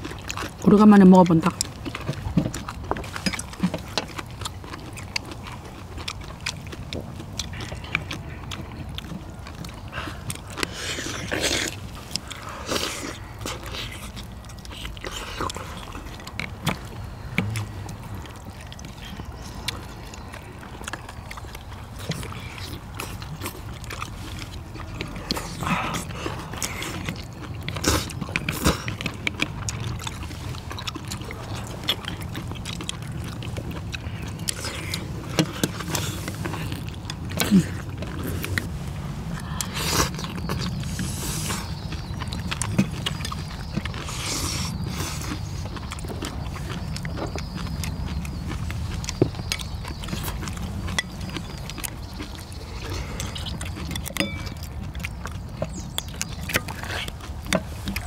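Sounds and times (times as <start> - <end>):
chewing and mouth noises: 0.0 - 58.0
steady low rumble: 1.4 - 58.0
chopsticks clicking against bowls: 48.9 - 58.0.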